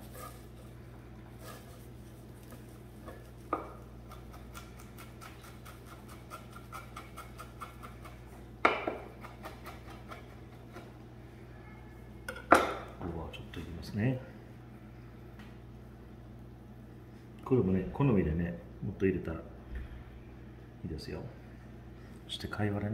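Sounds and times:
knife chopping on cutting board: 3.1s - 10.9s.

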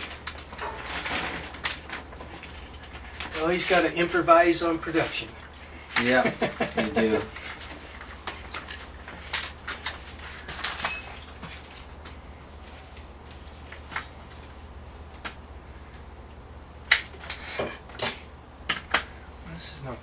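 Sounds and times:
metal tools clinking and rattling: 8.6s - 11.6s.

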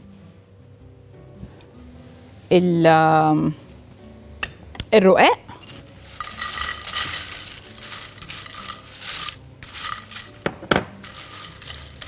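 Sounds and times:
dry dough crackling and rustling: 5.6s - 12.0s
clinks against dish: 10.4s - 11.0s.

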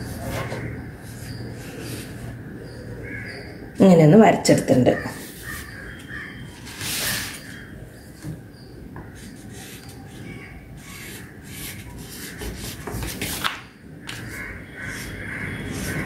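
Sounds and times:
paper rubbing on wooden table: 6.6s - 7.6s, 9.2s - 13.5s
marker pen scratching on paper: 9.2s - 13.5s, 14.1s - 16.0s.

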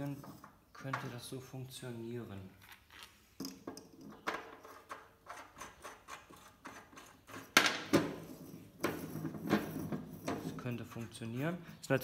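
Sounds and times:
metal spool clicking and knocking: 3.4s - 11.6s.

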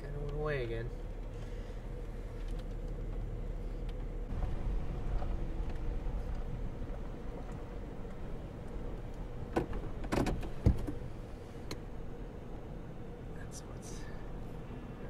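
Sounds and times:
road noise inside car: 0.0s - 15.0s
sharp knocks and clicks: 8.6s - 11.0s.

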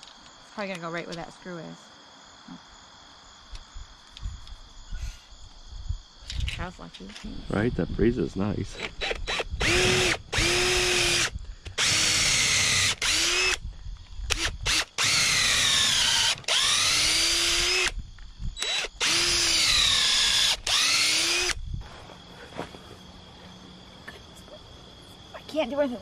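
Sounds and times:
crickets chirping: 0.0s - 26.0s
hammer drill boring wood: 8.8s - 13.6s, 14.3s - 18.0s, 18.6s - 21.6s.

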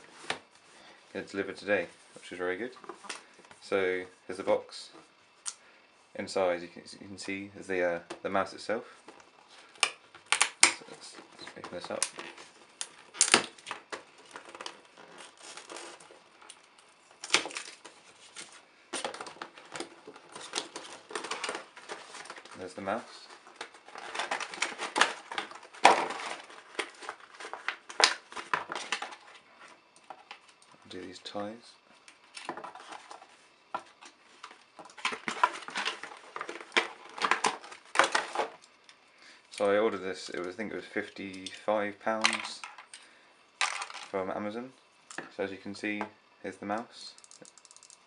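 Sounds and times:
plastic packaging crinkling: 9.7s - 30.6s, 32.4s - 38.9s.

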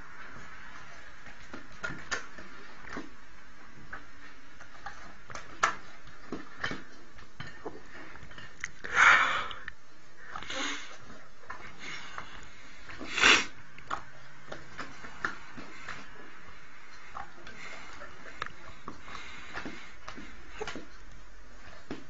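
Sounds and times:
dog sniffing or snorting: 12.9s - 13.6s.

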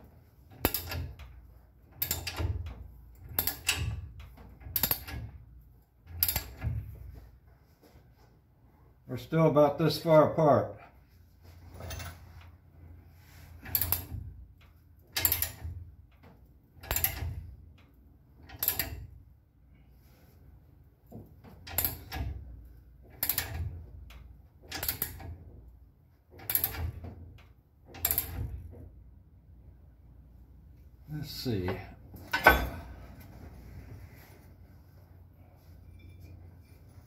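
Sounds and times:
ratchet wrench clicking: 13.7s - 14.2s.

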